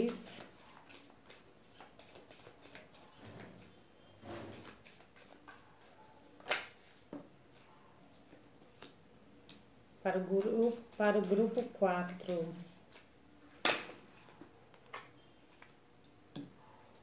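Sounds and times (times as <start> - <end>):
cards being shuffled: 0.0 - 3.1, 4.5 - 7.6, 8.2 - 9.6, 10.2 - 16.1
cards snapping: 6.4 - 6.8, 13.6 - 14.0.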